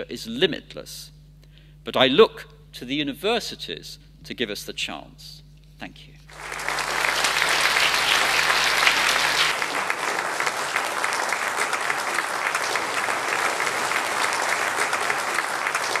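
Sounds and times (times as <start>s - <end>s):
audience applauding: 6.3s - 16.0s.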